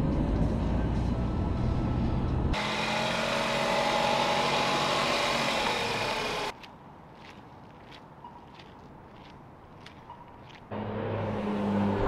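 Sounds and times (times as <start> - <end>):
road rumble inside car: 0.0 - 2.6.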